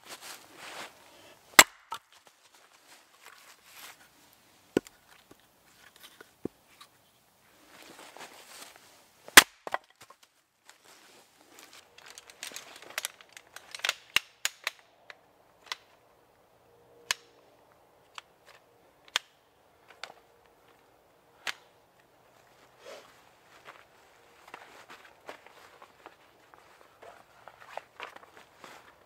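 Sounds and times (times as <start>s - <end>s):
firewood splitting cracks: 1.6s - 2.3s, 9.3s - 10.3s, 11.8s - 14.9s.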